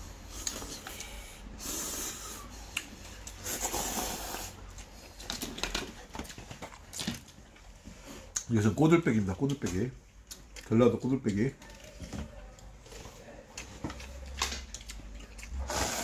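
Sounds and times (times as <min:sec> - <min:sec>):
person slurping noodles: 0:03.4 - 0:04.7, 0:15.6 - 0:16.0.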